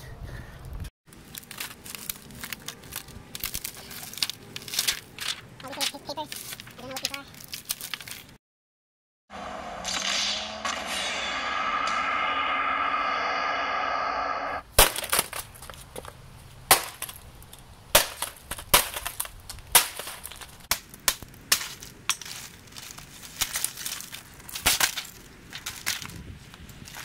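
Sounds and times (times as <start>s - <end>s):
glass and plastic crunching: 1.1s - 8.4s, 16.7s - 26.2s
short musical sting: 9.3s - 14.6s.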